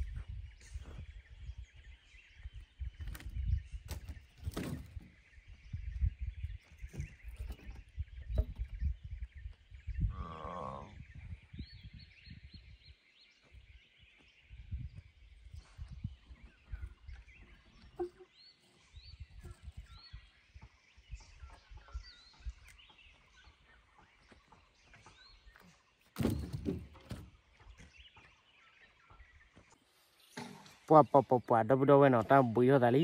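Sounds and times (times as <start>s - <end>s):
small birds calling: 0.0s - 33.0s
thumping and rustling: 3.0s - 5.2s, 26.1s - 27.4s.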